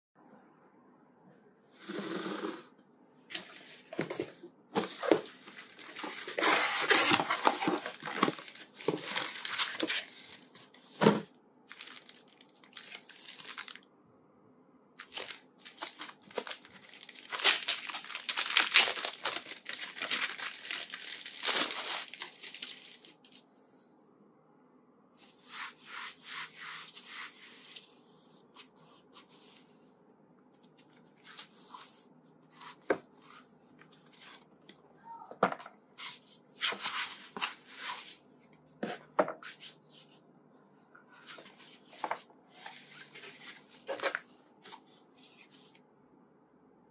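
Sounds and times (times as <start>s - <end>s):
plastic packaging crinkling and tearing: 4.8s - 10.7s, 11.7s - 13.8s, 15.0s - 23.4s.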